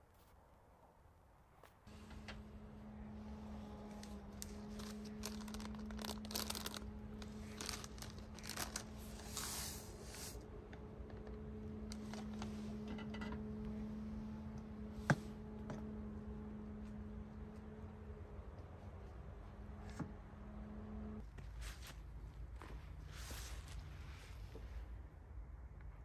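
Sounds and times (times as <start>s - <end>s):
steady low hum: 1.9s - 26.0s
crinkling and tearing packaging: 3.9s - 10.3s.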